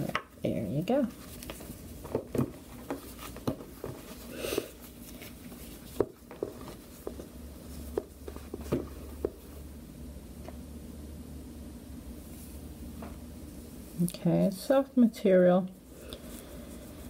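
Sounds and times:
fabric rustling: 0:00.9 - 0:09.7.

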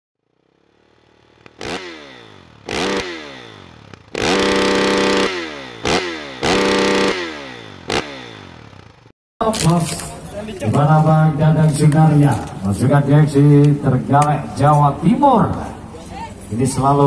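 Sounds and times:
dirt bike engine revving: 0:00.2 - 0:09.1.

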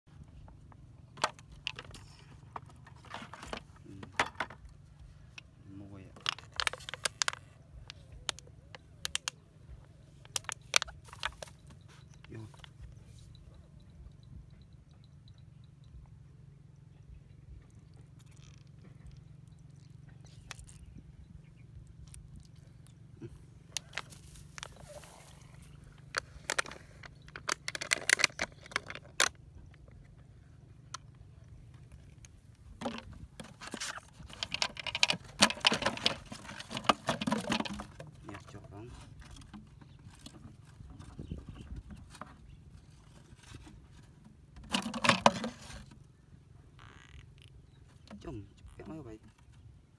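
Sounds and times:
low steady rumble: 0:00.1 - 0:35.6
plastic bottles crinkling: 0:06.1 - 0:09.4, 0:10.2 - 0:12.8, 0:19.7 - 0:20.8, 0:23.7 - 0:29.4, 0:31.8 - 0:41.2, 0:44.6 - 0:46.0.

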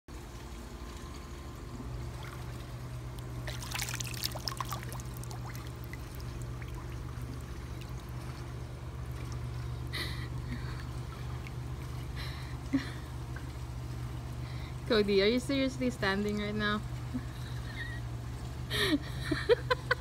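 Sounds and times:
steady low hum: 0:00.1 - 0:20.0
dog splashing in pool water: 0:02.0 - 0:09.7.

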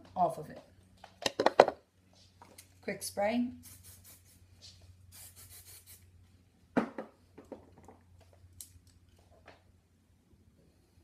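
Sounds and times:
aerosol can spraying: 0:03.6 - 0:04.4, 0:05.1 - 0:06.1.

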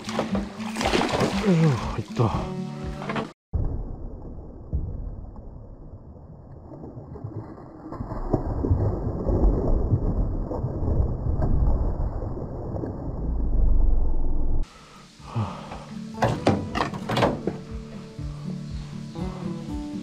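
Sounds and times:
low rumbling and crackling: 0:03.6 - 0:14.7.

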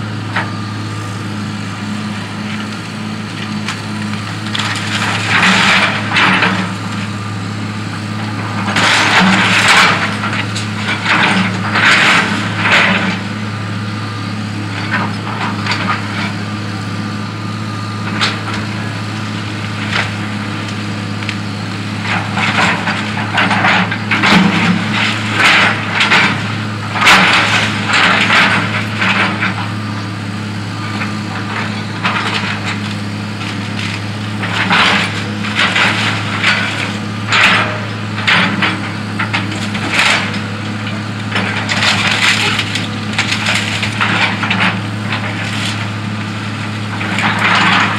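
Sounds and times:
excavator diesel engine running: 0:00.0 - 0:47.9
wood cracking and splintering: 0:02.5 - 0:07.1, 0:08.5 - 0:13.2, 0:18.1 - 0:29.7, 0:30.9 - 0:47.9.

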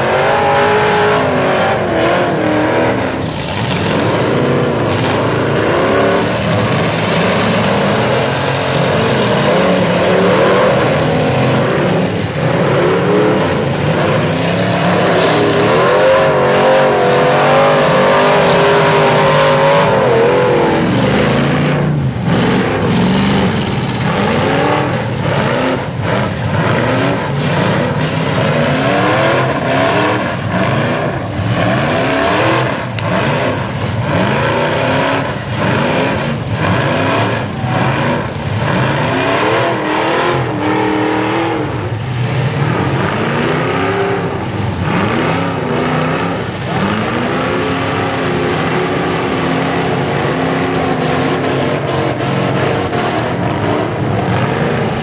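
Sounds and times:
truck engines revving hard: 0:00.0 - 0:55.0
trucks crashing into each other: 0:00.3 - 0:43.8.

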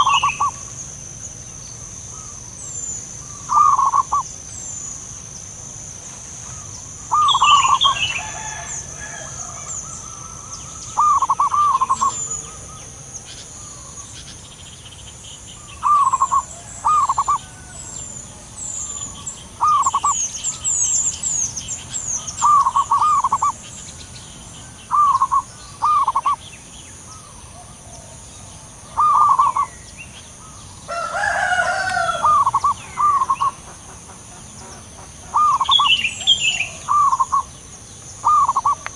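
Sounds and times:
doves cooing: 0:00.0 - 0:00.8, 0:03.2 - 0:05.1, 0:06.4 - 0:14.4, 0:15.6 - 0:23.7, 0:24.6 - 0:26.4, 0:27.0 - 0:37.6, 0:38.2 - 0:38.9
small birds chirping: 0:00.0 - 0:38.9
steady high hum: 0:00.0 - 0:38.9.

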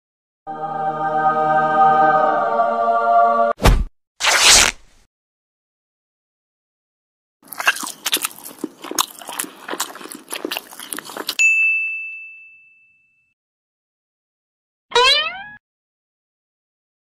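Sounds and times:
crunching and munching clicks: 0:07.4 - 0:11.4
high ding: 0:11.4 - 0:13.3.

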